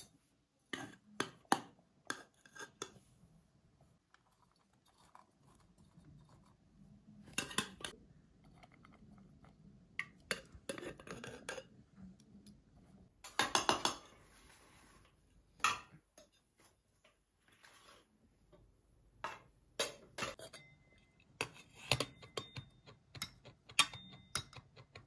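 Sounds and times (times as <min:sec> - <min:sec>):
dishes and cutlery clattering: 0:07.3 - 0:08.0, 0:13.3 - 0:14.2, 0:19.3 - 0:25.0.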